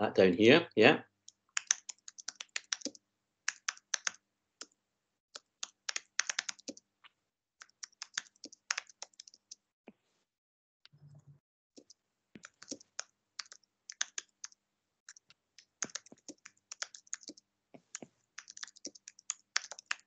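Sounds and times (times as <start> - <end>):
typing on computer keyboard: 1.6 - 4.2, 5.4 - 6.8, 7.6 - 9.6, 11.8 - 17.4, 18.4 - 20.0.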